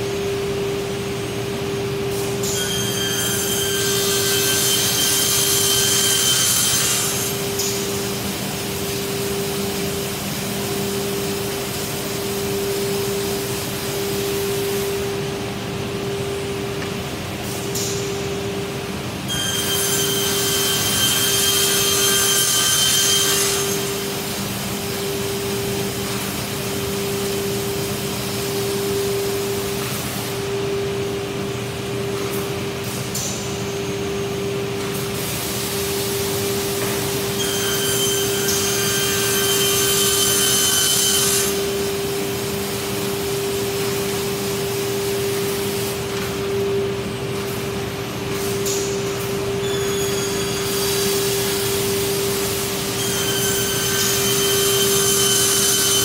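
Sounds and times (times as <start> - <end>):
saw cutting board with whine: 2.5 - 7.6, 19.3 - 24.2, 37.2 - 42.0, 49.5 - 56.0.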